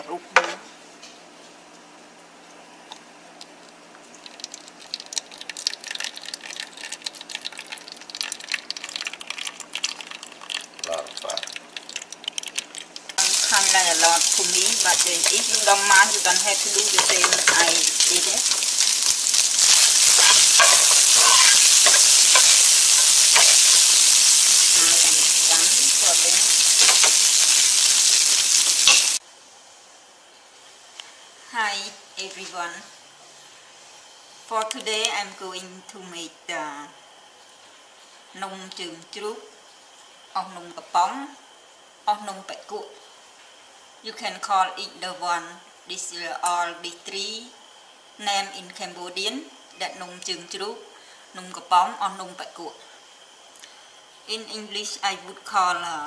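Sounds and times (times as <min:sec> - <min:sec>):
fat trickling into cup: 0:04.0 - 0:29.0
hot fat crackling: 0:04.1 - 0:29.2
meat sizzling in a pan: 0:04.2 - 0:29.2
spatula scraping a pan: 0:15.2 - 0:25.3.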